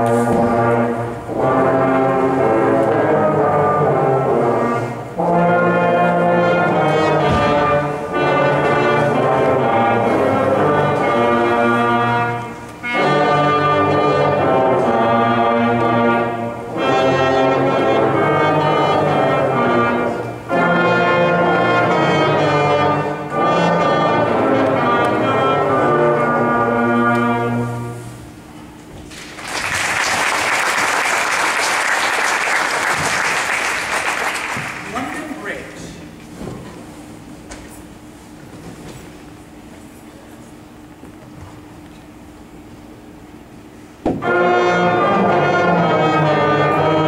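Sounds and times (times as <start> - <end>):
brass section playing chords: 0.0 - 28.5, 44.1 - 47.0.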